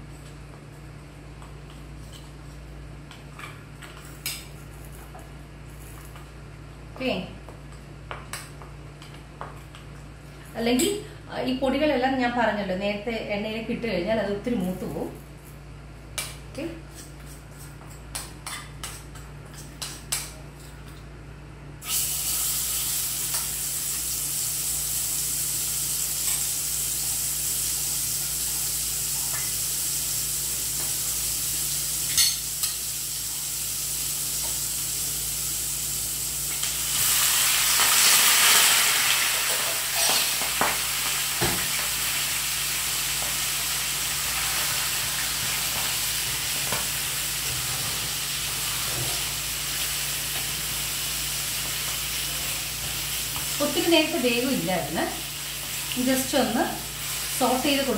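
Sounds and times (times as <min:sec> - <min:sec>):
frying sizzle in a pan: 0:21.8 - 0:57.9.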